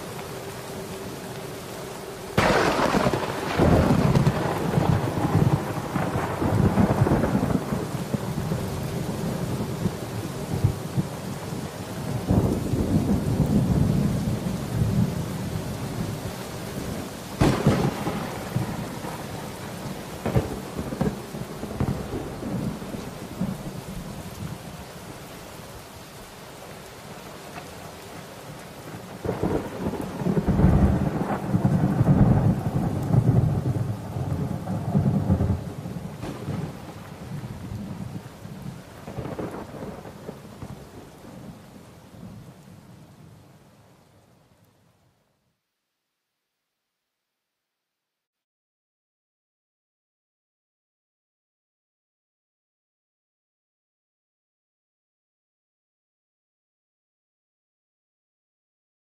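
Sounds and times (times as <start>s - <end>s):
thunder-like rumbling noise: 2.4s - 11.1s, 17.4s - 19.5s, 29.2s - 38.3s.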